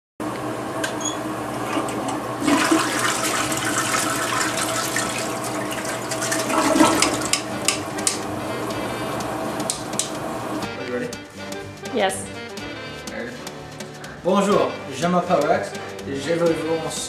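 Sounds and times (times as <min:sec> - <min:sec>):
water rushing: 0:00.3 - 0:10.6.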